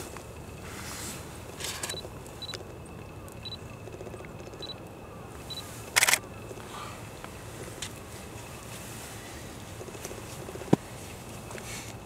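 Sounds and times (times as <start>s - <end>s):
camera shutter burst: 5.9s - 6.2s.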